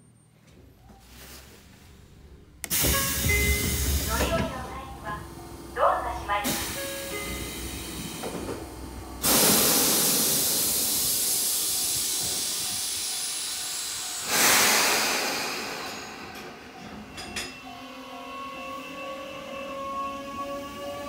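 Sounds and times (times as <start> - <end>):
compressed air hissing from train: 2.6 - 4.2, 6.4 - 8.5, 9.1 - 17.4.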